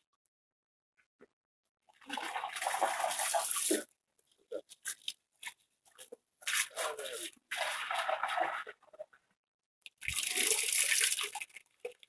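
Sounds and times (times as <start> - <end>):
water splashing: 2.0 - 3.9, 6.4 - 9.0, 9.9 - 12.0.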